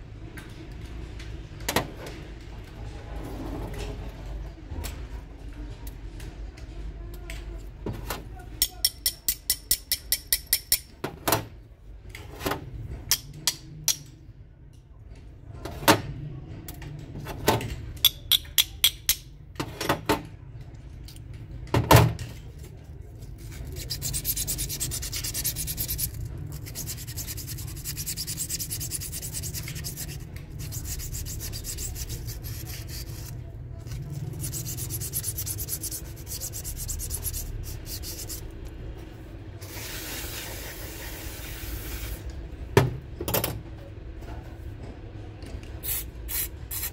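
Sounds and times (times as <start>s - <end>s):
hand scraping metal: 23.4s - 38.5s.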